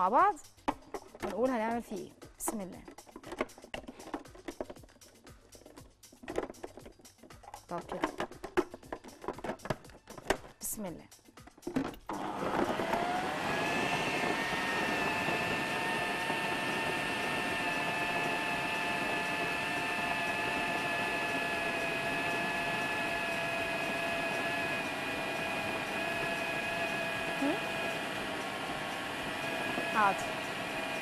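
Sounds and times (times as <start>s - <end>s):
food processor motor whining: 12.1s - 31.0s.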